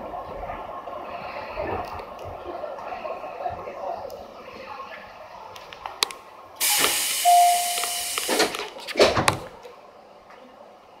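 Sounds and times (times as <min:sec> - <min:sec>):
short beep: 0:06.6 - 0:08.2
compressed air hissing: 0:06.6 - 0:08.6.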